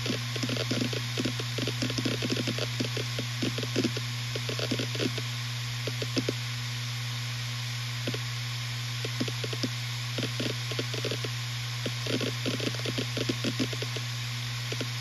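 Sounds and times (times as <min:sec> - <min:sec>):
hard drive heads clicking: 0:00.0 - 0:05.2, 0:05.8 - 0:06.4, 0:09.0 - 0:14.0, 0:14.7 - 0:15.0
hard drive spinning hum: 0:00.0 - 0:15.0.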